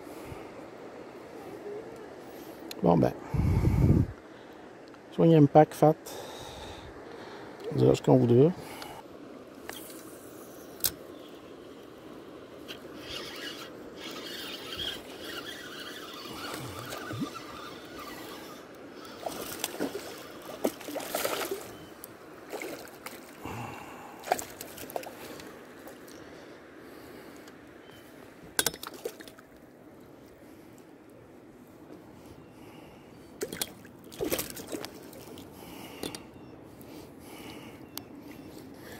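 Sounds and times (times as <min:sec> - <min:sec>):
fishing rod and reel clicks: 0:10.8 - 0:11.0, 0:12.6 - 0:20.8
water sloshing and splashing: 0:13.0 - 0:23.6, 0:24.2 - 0:26.3, 0:28.6 - 0:29.6, 0:33.4 - 0:35.5.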